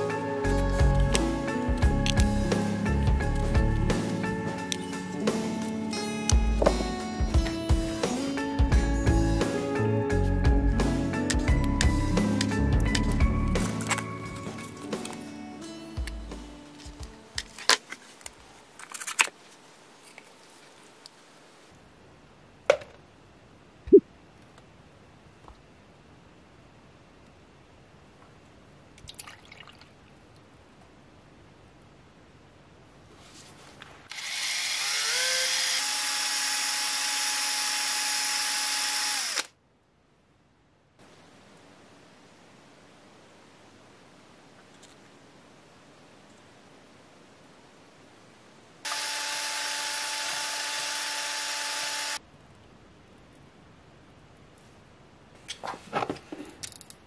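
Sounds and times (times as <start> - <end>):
power drill whining: 34.1 - 39.5, 48.9 - 52.2.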